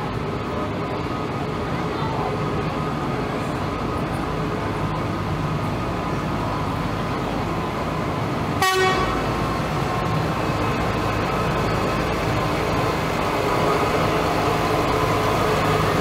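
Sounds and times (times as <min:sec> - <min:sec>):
tractor engines running: 0:00.0 - 0:16.0
tractor horn toot: 0:08.6 - 0:09.2.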